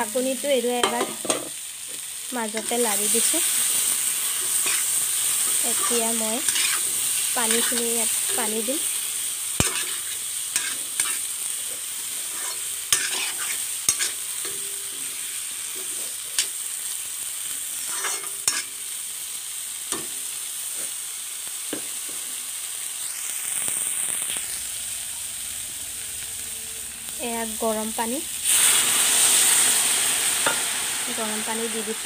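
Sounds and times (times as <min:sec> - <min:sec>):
vegetables sizzling in hot oil: 0:00.0 - 0:32.0
spatula scraping metal pan: 0:03.7 - 0:08.6, 0:09.6 - 0:11.3, 0:12.1 - 0:14.6, 0:17.8 - 0:18.8.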